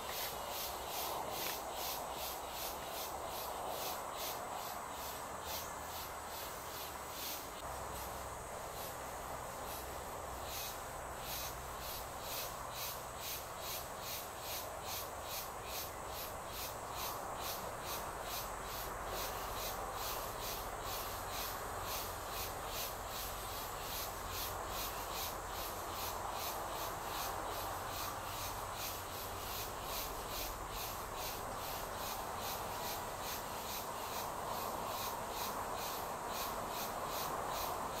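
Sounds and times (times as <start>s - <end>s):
background hiss: 0.0s - 38.0s
insects chirping: 0.0s - 38.0s.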